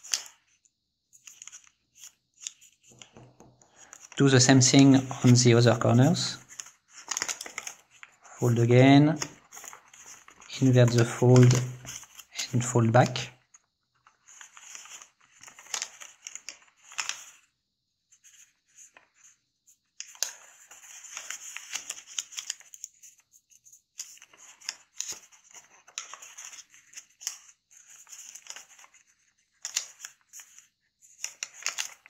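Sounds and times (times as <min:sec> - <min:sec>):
paper rustling and crackling: 0:01.2 - 0:13.3, 0:14.0 - 0:17.4, 0:20.0 - 0:23.2, 0:23.9 - 0:32.0.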